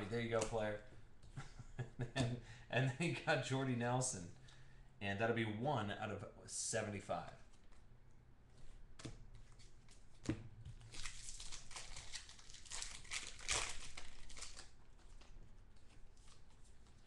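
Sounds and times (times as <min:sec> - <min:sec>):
foil wrapper crinkling: 0:10.8 - 0:17.0.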